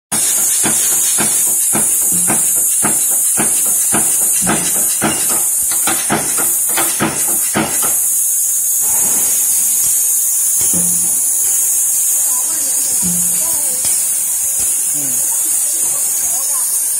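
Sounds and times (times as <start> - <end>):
punch press stamping steel: 0.1 - 8.2, 10.6 - 11.6
steady high hiss: 0.1 - 16.9.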